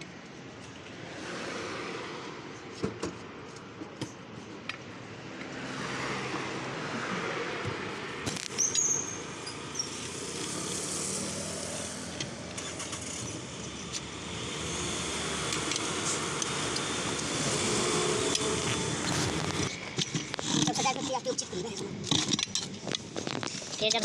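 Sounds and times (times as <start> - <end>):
tyre levers clinking on rim: 8.4 - 10.6
vehicle engine running: 10.0 - 21.2.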